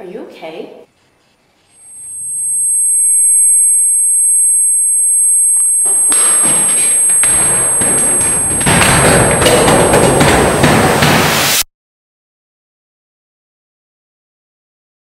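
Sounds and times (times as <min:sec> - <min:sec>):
high-pitched ringing tone: 0:01.6 - 0:10.8
loud rushing noise: 0:06.5 - 0:11.6.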